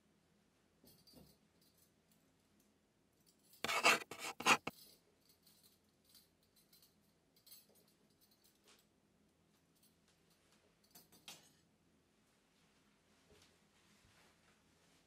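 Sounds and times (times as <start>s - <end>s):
quick scraping strokes: 3.6s - 4.7s
faint clinks and ticks: 4.6s - 11.6s.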